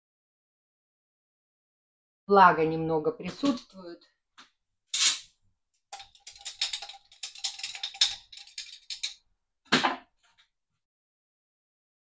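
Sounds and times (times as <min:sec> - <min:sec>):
spice jar rattling: 0:05.9 - 0:09.2.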